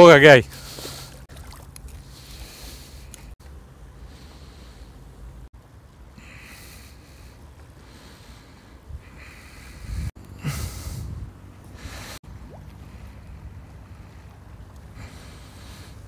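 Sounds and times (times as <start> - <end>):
water lapping at shore: 0.5 - 3.4, 11.4 - 16.0
wind buffeting microphone: 8.7 - 15.0.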